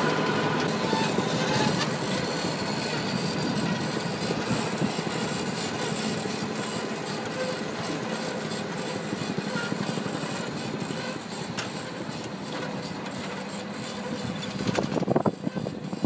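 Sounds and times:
sod harvester running: 0.0 - 16.0.

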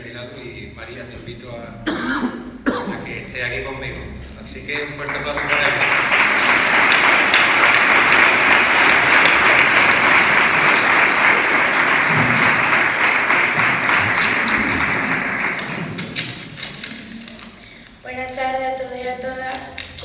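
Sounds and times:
congregation applauding: 4.8 - 17.8.

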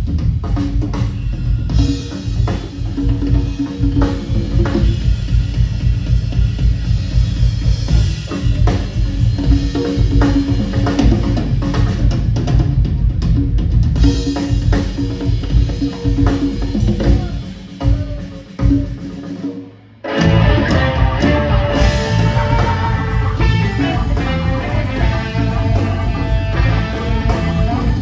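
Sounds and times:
live rock band playing: 0.0 - 28.0
electric guitar lead lines: 19.4 - 28.0.

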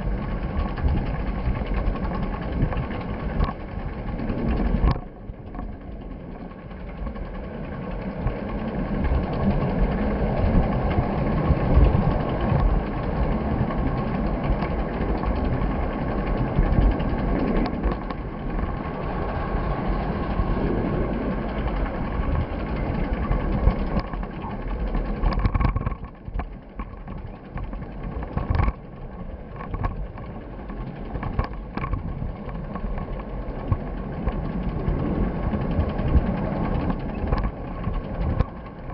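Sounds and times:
vehicle rumbling in motion: 0.0 - 38.9.

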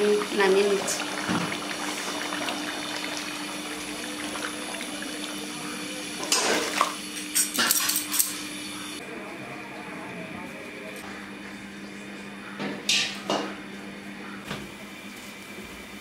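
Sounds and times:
curry bubbling in a pot: 0.0 - 6.3.

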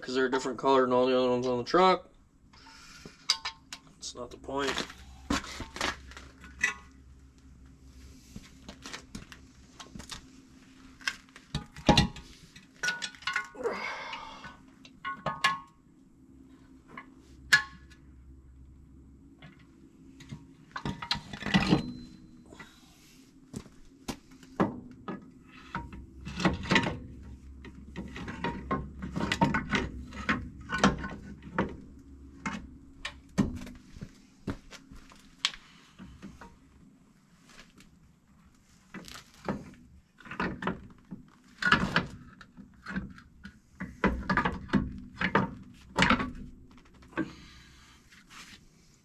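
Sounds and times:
metal clanks and knocks: 24.6 - 33.8.

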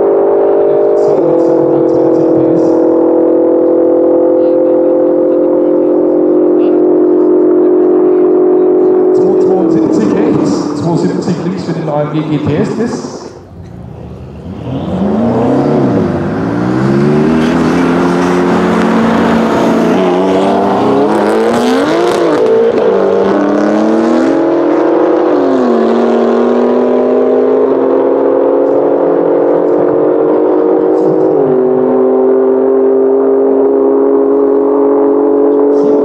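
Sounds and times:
cars accelerating hard: 0.0 - 36.0.

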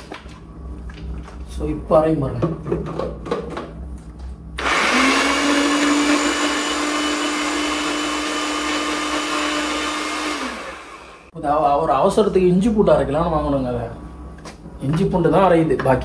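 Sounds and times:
mixer grinder motor whining: 4.6 - 11.3.

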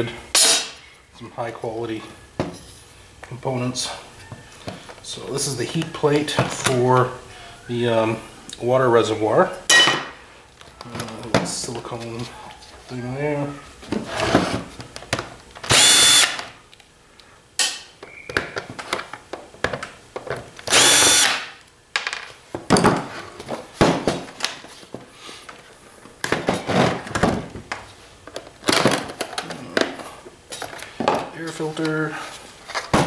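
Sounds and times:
cordless drill whining: 15.7 - 16.4, 20.7 - 21.4.

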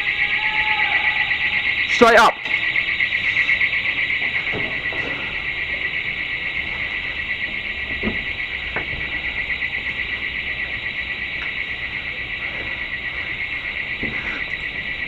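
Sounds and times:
pulsing high-pitched alarm tone: 0.0 - 15.0.

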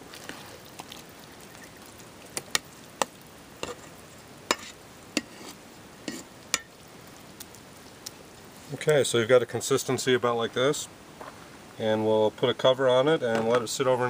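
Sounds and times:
spoon stirring wet mixture: 0.0 - 6.8.

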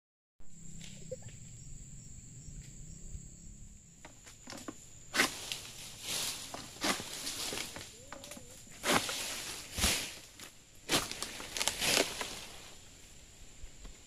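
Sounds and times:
steady high-pitched whine: 0.4 - 10.8
palm frond rustling down: 4.1 - 14.0.

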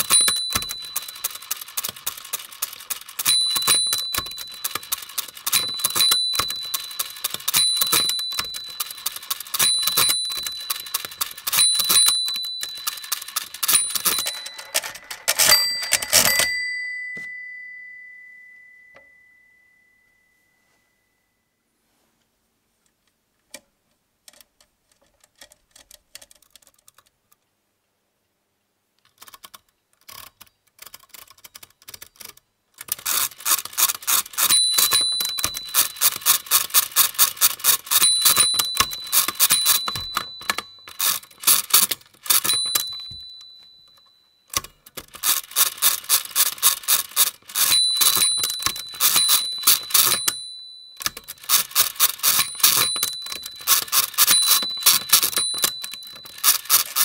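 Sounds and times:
small bell ringing: 0.0 - 2.3, 3.2 - 21.2, 34.3 - 44.5, 46.6 - 57.0.

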